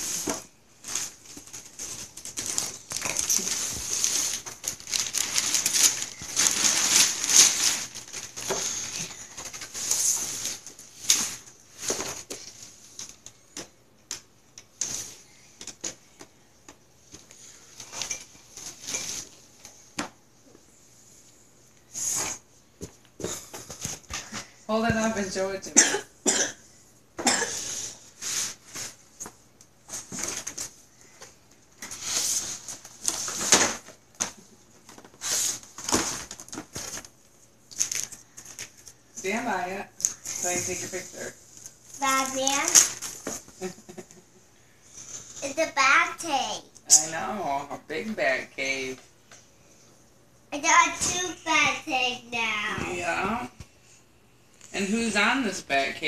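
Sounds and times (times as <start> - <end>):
cardboard and plastic packaging rustling: 0.0 - 20.2, 27.8 - 44.2.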